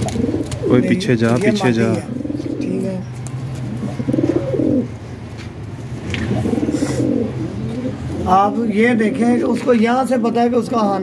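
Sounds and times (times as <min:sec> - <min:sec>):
pigeons cooing: 0:00.0 - 0:05.1, 0:05.9 - 0:09.5.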